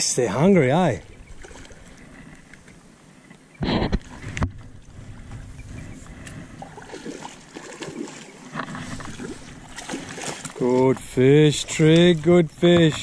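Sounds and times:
small water splashes: 1.0s - 2.5s, 6.1s - 13.0s.

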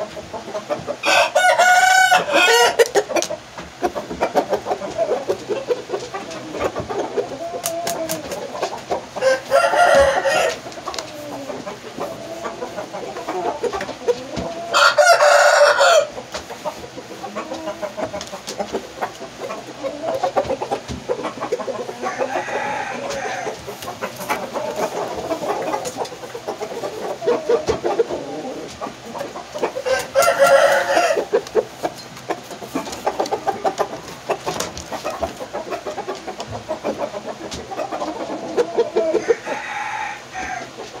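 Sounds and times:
chicken clucking: 0.0s - 41.0s
rooster crowing: 1.0s - 2.9s, 9.2s - 10.6s, 14.6s - 16.2s, 22.0s - 23.6s, 29.8s - 31.4s, 39.0s - 40.8s.

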